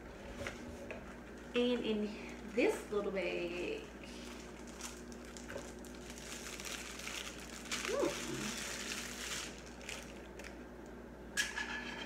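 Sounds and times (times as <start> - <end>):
plastic bag rustling and crinkling: 1.0 - 10.6.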